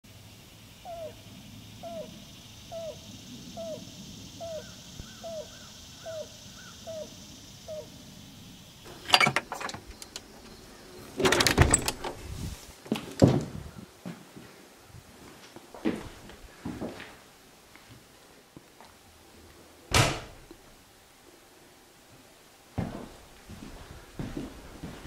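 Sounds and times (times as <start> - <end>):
faint steady hiss: 0.0 - 25.0
bird calling: 0.8 - 12.1
door clattering knocks: 8.9 - 10.3, 11.2 - 12.2.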